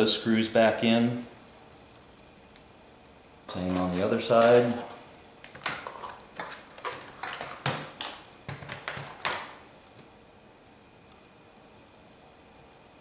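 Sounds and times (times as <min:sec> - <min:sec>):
laptop parts clicking and knocking: 0:05.4 - 0:09.6.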